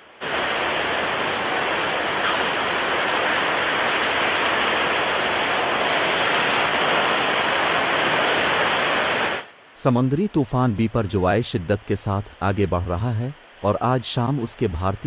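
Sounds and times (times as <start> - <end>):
storm wind roaring: 0.0 - 9.5
rough sea: 0.0 - 15.0.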